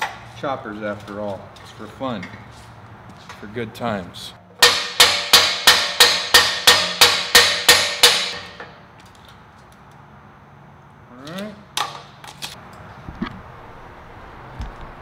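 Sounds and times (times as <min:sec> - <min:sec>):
hammer striking steel: 0:04.6 - 0:08.8.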